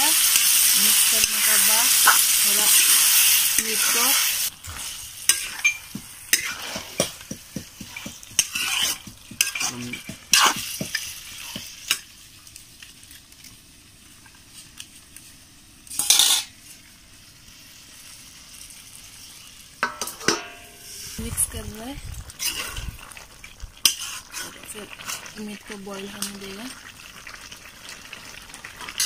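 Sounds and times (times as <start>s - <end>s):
meat sizzling: 0.0s - 29.0s
metal spatula scraping metal pan: 4.8s - 11.0s, 15.9s - 16.5s, 22.4s - 22.9s, 23.8s - 25.3s.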